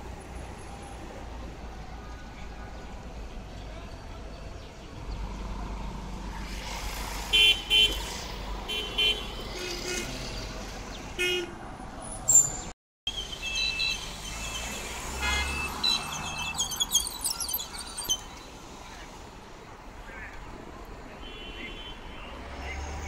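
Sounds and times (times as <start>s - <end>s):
city street traffic: 0.0s - 23.0s
vehicle horn toots and beeps: 8.7s - 10.1s, 13.4s - 16.0s, 21.2s - 22.3s.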